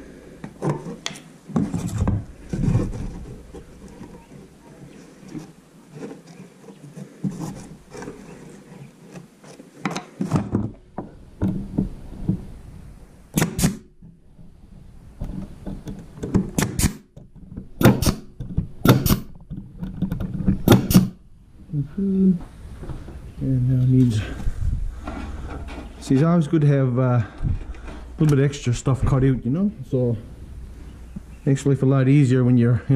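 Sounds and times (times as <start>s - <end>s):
pneumatic stapler snapping: 13.3s - 13.9s, 16.6s - 17.1s, 17.8s - 19.3s, 20.6s - 21.2s.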